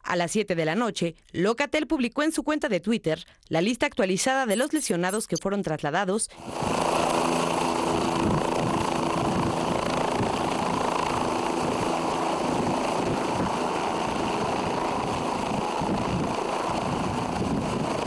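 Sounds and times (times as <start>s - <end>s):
helicopter rotor and engine: 6.3s - 18.0s.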